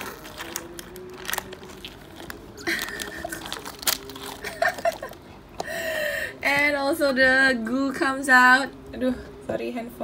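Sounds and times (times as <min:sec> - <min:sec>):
slime squelching: 0:00.0 - 0:05.7.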